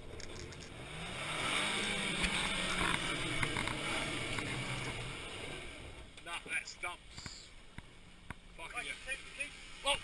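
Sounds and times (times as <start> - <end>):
spinning tyres throwing dirt: 0.0 - 6.1
truck engine revving: 0.0 - 6.1.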